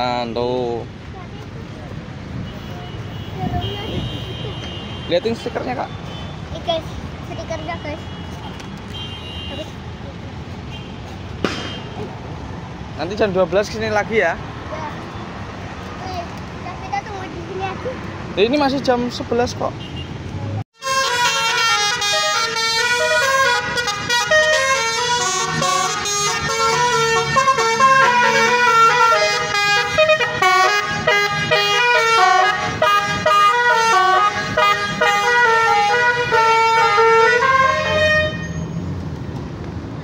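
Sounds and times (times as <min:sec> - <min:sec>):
multi-tone bus horn melody: 0:02.5 - 0:06.4, 0:20.8 - 0:38.6.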